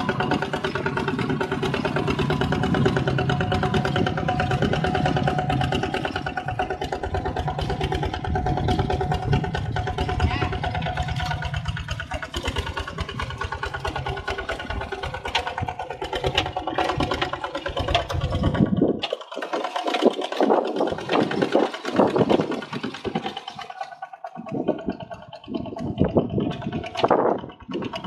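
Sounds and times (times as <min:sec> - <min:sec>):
diesel engine chugging: 0:00.0 - 0:28.0
uneven mechanical sound: 0:00.0 - 0:28.0.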